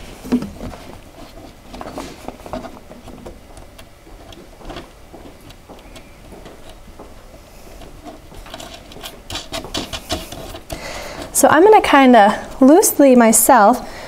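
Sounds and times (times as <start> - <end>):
light clicks and rustles: 0.2 - 11.4.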